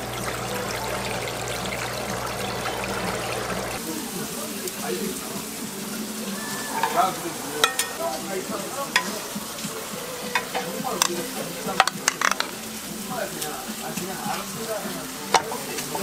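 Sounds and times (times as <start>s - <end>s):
vegetables sizzling on griddle: 0.0s - 16.0s
tongs clacking against metal: 6.7s - 8.2s, 8.9s - 9.3s, 10.3s - 12.6s, 15.3s - 16.0s.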